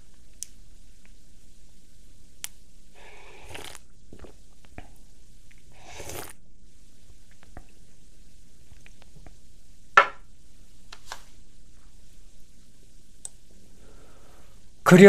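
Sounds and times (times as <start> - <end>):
man sipping water: 3.0 - 4.4, 5.7 - 6.4.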